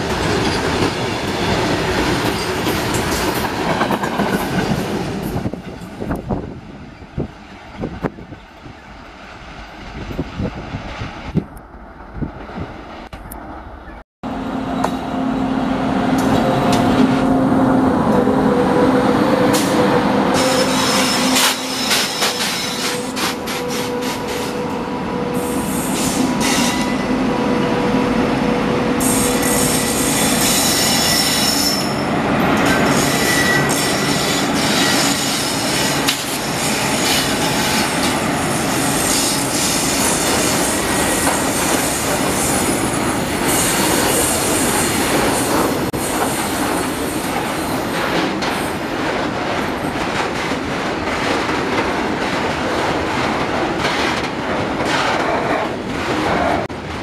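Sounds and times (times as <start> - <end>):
train wheels rumbling on rail: 0.0 - 57.0
locomotive humming tone: 12.9 - 48.5
wheel squeal: 32.9 - 35.8.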